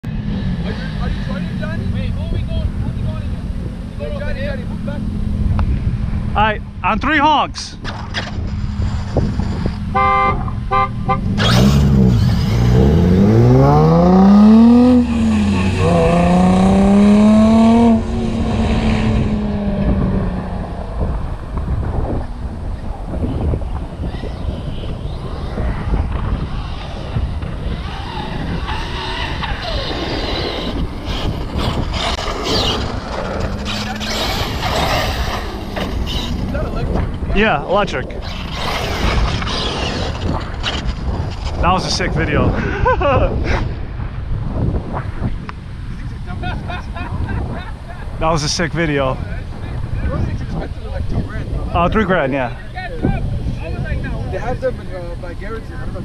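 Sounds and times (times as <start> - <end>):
engines revving hard: 0.0 - 7.3, 7.9 - 43.8, 45.3 - 56.0
wind buffeting microphone: 0.0 - 56.0
car horn honking: 9.9 - 11.3
electric motor whine: 11.3 - 17.4.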